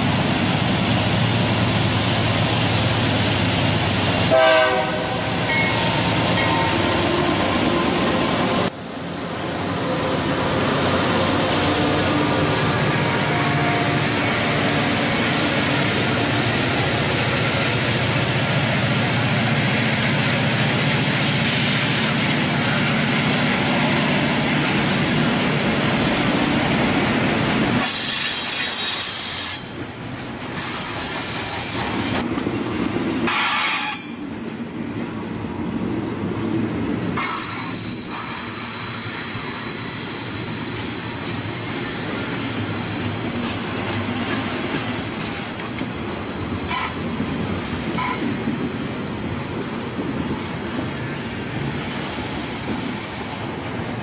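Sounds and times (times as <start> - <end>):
diesel locomotive engines: 0.0 - 54.0
rumble of train wheels: 0.0 - 54.0
train wheel squeal: 11.0 - 18.0, 27.8 - 32.2, 33.3 - 34.9, 37.0 - 53.7.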